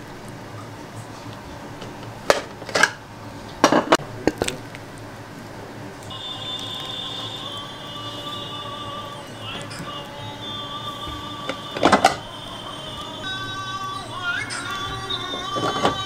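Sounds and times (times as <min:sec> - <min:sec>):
background music: 0:06.1 - 0:16.0
dishes and utensils clinking: 0:14.5 - 0:16.0.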